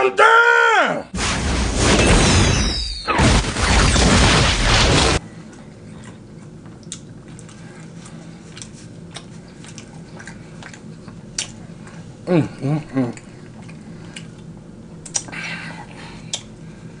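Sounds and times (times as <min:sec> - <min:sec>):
explosion blast: 0:01.2 - 0:05.2.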